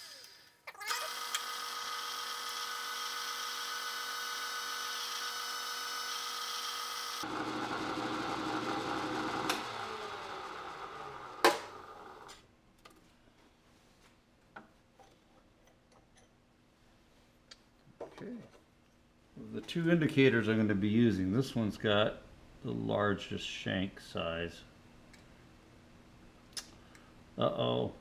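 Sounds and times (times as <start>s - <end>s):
milling machine whine: 1.1s - 12.3s.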